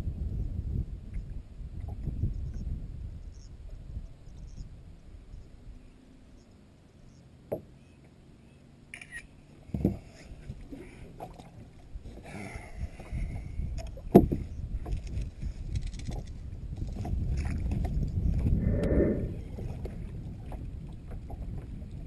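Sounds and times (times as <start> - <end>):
wind: 0.0 - 22.0
choppy water: 9.4 - 18.6, 19.4 - 22.0.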